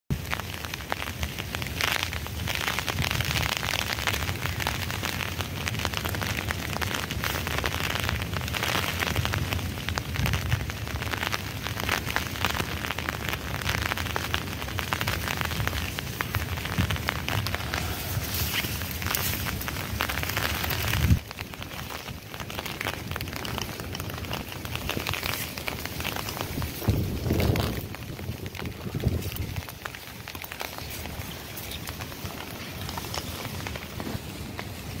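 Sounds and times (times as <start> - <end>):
dry reeds and leaves rustling: 0.2 - 35.0
wind buffeting microphone: 15.0 - 35.0.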